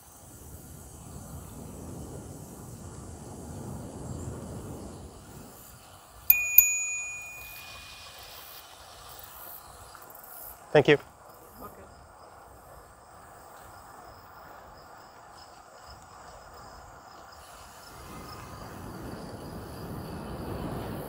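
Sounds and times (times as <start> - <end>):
bicycle bell dings: 6.3 - 8.6.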